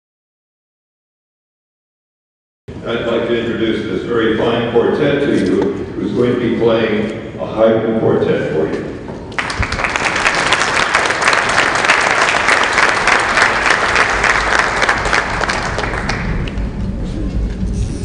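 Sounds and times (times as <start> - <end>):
audience applauding: 9.3 - 16.8.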